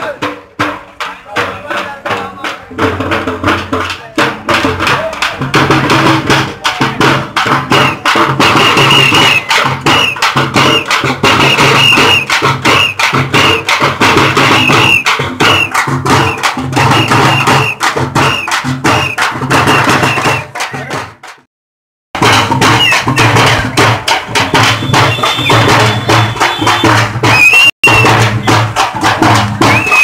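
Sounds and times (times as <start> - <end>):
frame drums beaten fast: 0.0 - 21.4, 22.2 - 30.0
high tone in short bursts: 24.8 - 28.2.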